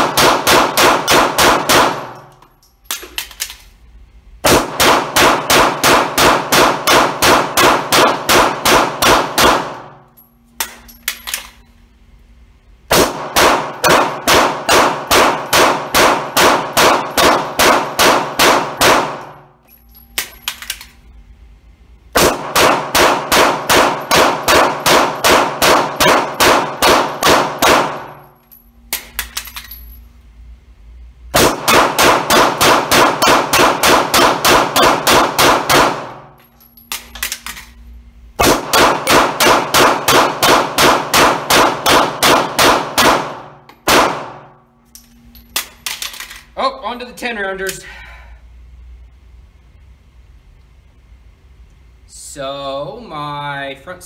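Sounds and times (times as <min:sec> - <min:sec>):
pistol shots echoing indoors: 0:00.0 - 0:03.6, 0:04.3 - 0:11.6, 0:12.8 - 0:21.0, 0:22.0 - 0:29.8, 0:31.3 - 0:36.4, 0:38.4 - 0:44.7
magazine change clicks and clatter: 0:02.2 - 0:03.8, 0:10.6 - 0:11.7, 0:20.1 - 0:21.0, 0:28.9 - 0:29.9, 0:36.5 - 0:37.8, 0:44.9 - 0:46.5.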